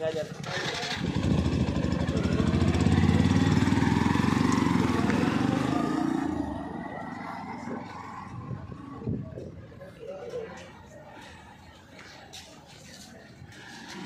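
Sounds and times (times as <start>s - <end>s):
motorcycle engine running: 0.4s - 6.8s.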